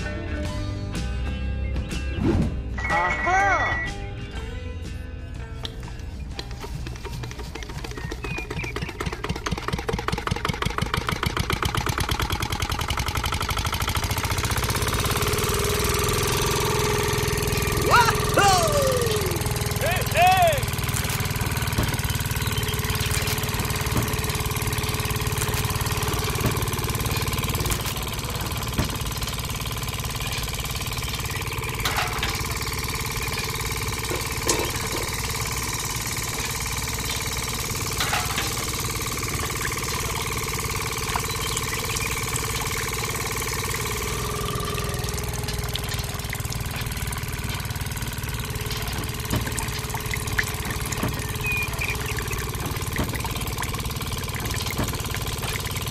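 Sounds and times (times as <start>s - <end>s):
small engine idling: 2.9s - 55.9s.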